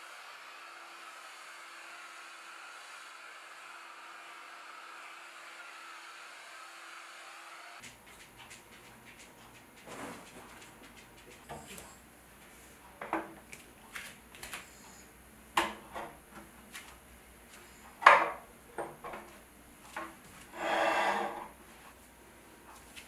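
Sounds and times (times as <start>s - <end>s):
table scraping on rug: 20.5s - 21.6s.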